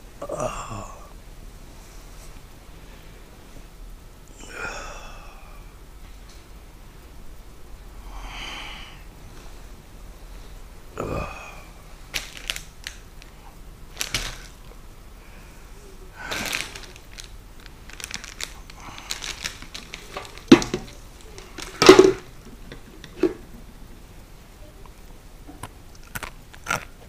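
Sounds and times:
foil and wrappers crinkling: 12.1 - 14.7, 16.1 - 23.5.

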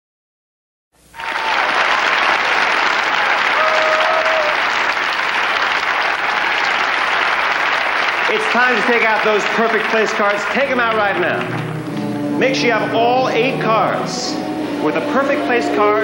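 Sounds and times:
audience applauding and cheering: 1.0 - 13.0
held call from crowd: 1.2 - 11.9.

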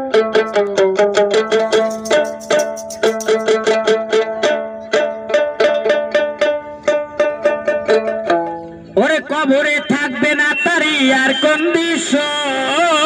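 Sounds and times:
plucked lute notes: 0.0 - 10.4.

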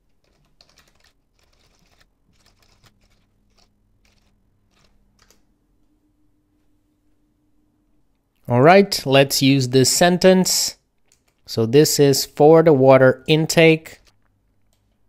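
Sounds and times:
faint typing on keyboard: 0.0 - 5.5, 10.9 - 11.5.

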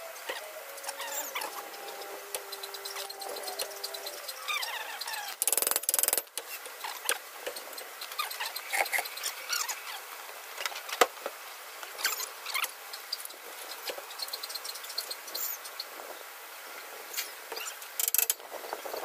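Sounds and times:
high chirping squeaks: 0.0 - 6.2, 7.6 - 10.0, 12.0 - 15.9, 17.2 - 17.8.

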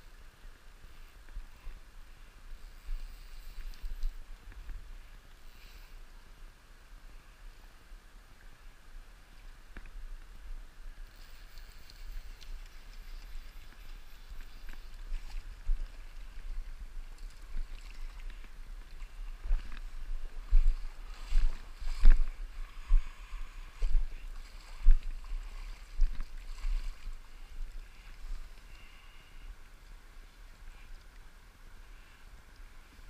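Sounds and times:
water splashing and sloshing: 11.1 - 29.0.

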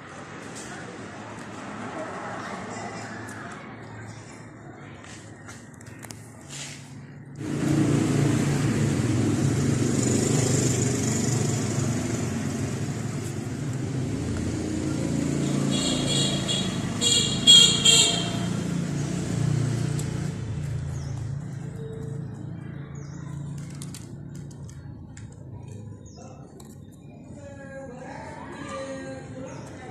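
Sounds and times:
vehicle engine running: 6.5 - 27.0.

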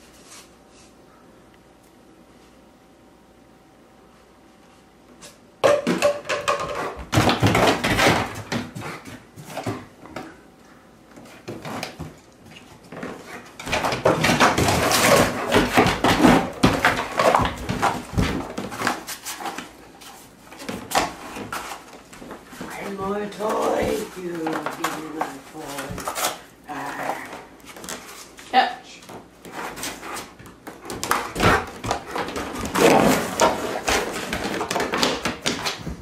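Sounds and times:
dog ripping cardboard: 11.3 - 26.5, 29.4 - 35.9.

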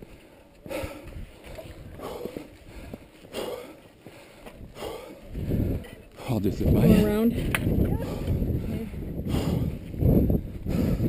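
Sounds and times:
heavy breathing: 0.0 - 11.0
wind rumble on microphone: 0.7 - 3.1, 4.5 - 11.0.

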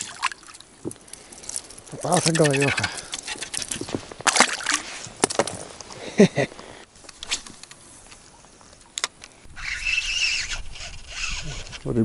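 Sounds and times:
water splashing: 0.0 - 5.9
fishing reel whirring: 9.6 - 11.8.

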